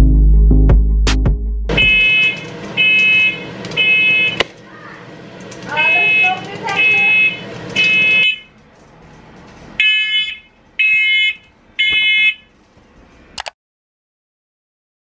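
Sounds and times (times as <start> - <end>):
smoke alarm high-pitched beeps: 1.7 - 4.4, 5.8 - 8.5, 9.8 - 12.4
alarm click: 1.7 - 4.5.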